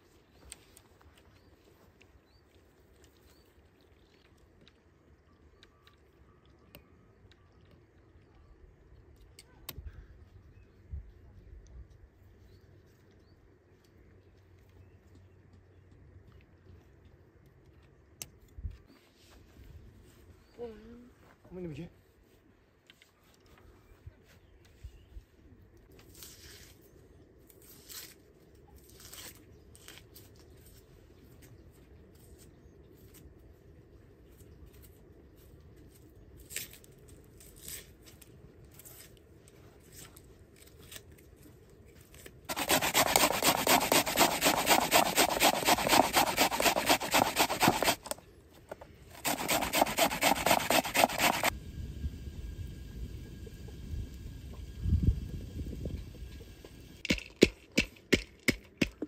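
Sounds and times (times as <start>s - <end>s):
handsaw cutting wood: 42.5s - 48.2s, 49.2s - 51.5s.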